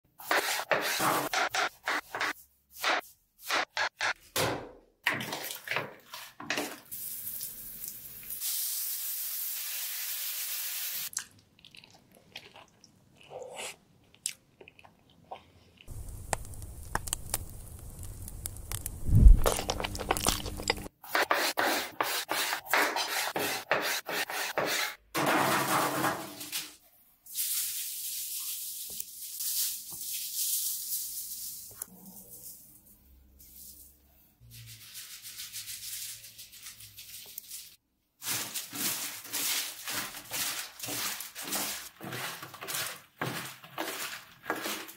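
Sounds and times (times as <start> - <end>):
steady hiss: 15.9 - 19.4
salt sprinkling on potatoes: 15.9 - 20.9, 27.3 - 44.9.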